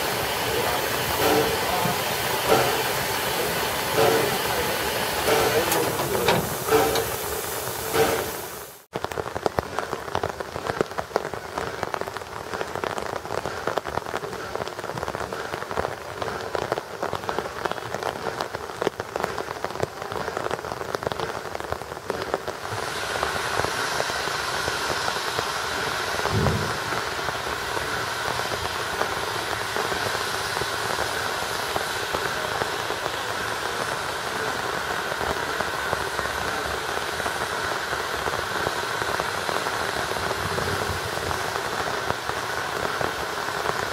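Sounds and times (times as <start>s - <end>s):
steam hissing: 0.0s - 8.9s, 10.6s - 43.9s
rain pattering: 0.0s - 43.9s
low thump: 26.3s - 27.1s.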